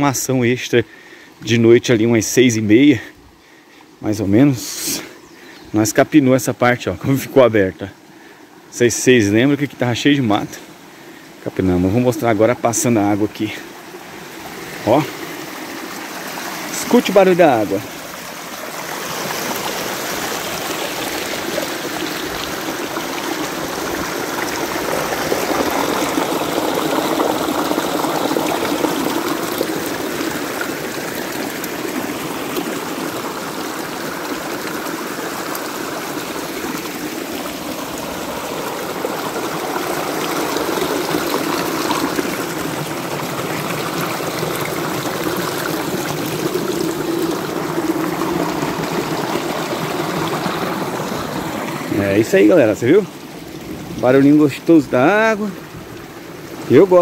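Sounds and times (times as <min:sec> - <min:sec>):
water running in a ditch: 0:00.0 - 0:57.0.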